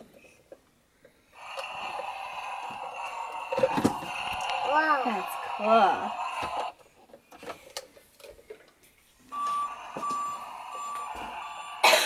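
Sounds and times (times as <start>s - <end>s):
toy beeping: 9.3s - 11.8s
steady electronic tone: 9.3s - 11.9s.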